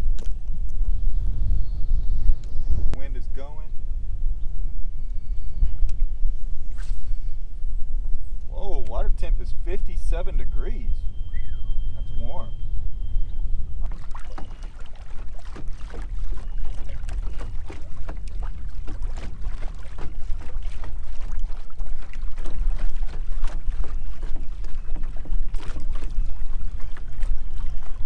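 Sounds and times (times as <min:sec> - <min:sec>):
wind buffeting microphone: 0:00.0 - 0:28.0
waves slapping boat hull: 0:13.8 - 0:28.0.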